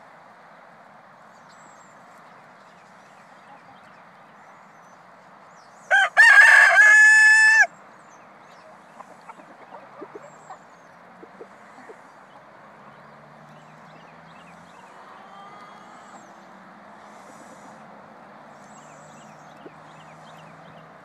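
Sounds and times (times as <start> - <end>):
rooster crowing: 5.9 - 7.7, 14.8 - 16.4.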